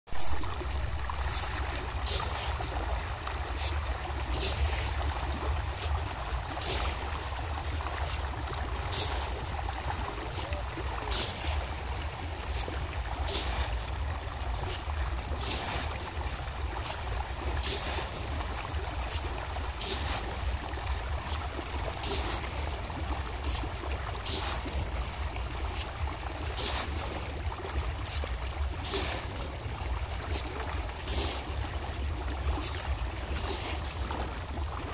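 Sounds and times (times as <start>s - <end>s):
steady low rumble: 0.1s - 34.9s
fish splashing at water surface: 0.2s - 34.9s
feed pellets hissing on water: 2.0s - 2.6s, 10.3s - 11.6s, 17.6s - 18.4s, 19.1s - 20.5s, 21.3s - 22.6s, 23.5s - 24.8s, 26.6s - 27.2s, 28.1s - 29.3s, 30.3s - 31.5s.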